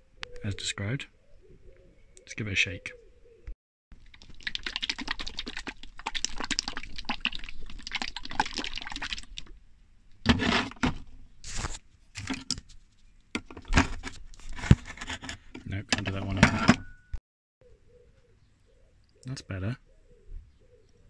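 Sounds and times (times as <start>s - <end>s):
metal paint tin rattling: 10.2s - 11.1s, 12.2s - 12.7s, 13.4s - 17.0s.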